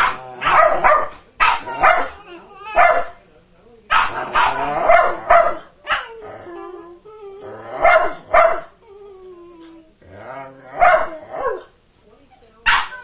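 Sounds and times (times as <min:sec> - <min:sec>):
dogs play-barking: 0:00.0 - 0:03.2, 0:03.9 - 0:13.0
dog whining: 0:01.6 - 0:03.0, 0:05.9 - 0:11.6.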